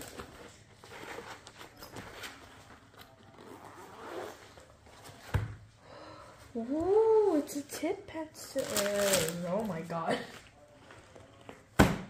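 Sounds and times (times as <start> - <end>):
zipper being pulled open: 3.4 - 4.5.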